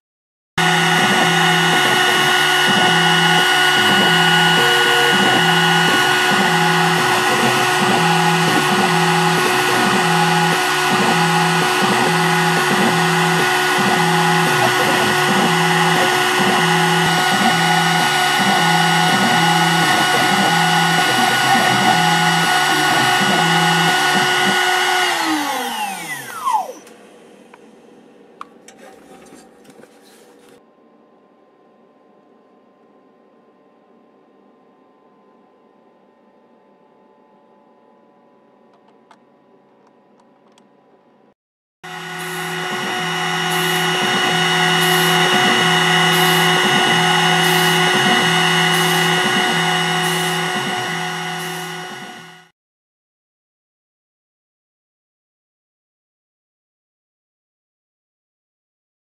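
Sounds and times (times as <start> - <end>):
pulsing low hum: 0.6 - 24.6, 41.9 - 52.3
router spindle whine: 0.6 - 27.7, 41.9 - 52.5.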